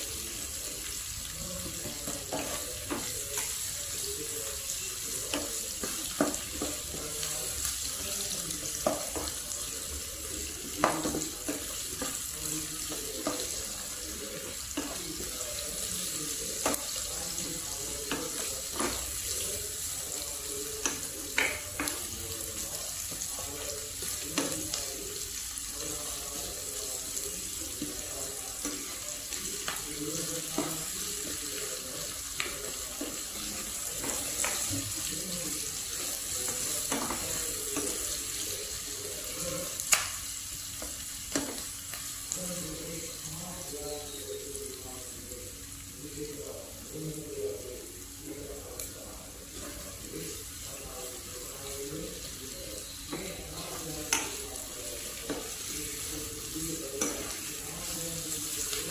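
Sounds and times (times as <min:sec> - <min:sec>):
vegetables sizzling in a frying pan: 0:00.0 - 0:58.9
spatula knocking against pan: 0:08.8 - 0:09.3.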